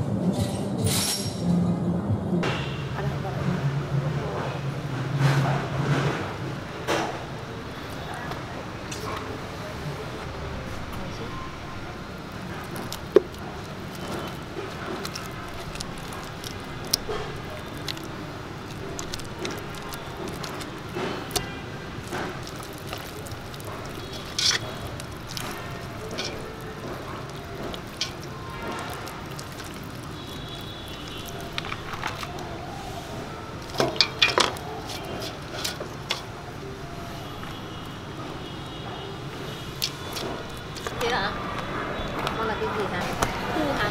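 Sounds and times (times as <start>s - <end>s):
hands squishing paste: 12.2s - 36.6s, 39.7s - 42.4s
clicks and knocks against pot: 12.4s - 32.5s, 33.6s - 36.3s.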